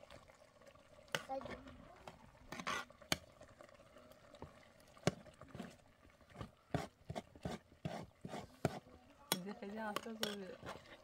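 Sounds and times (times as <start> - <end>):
metal spoon stirring pot: 2.5 - 3.2, 5.0 - 11.0
spoon knocking pot side: 8.6 - 10.5.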